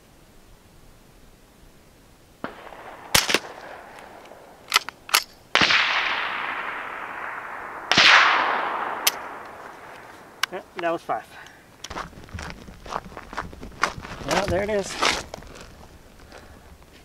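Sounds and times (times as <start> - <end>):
quiet rifle shots: 2.4 - 12.0
metallic clicks of rifle action: 3.2 - 5.4, 9.0 - 12.0.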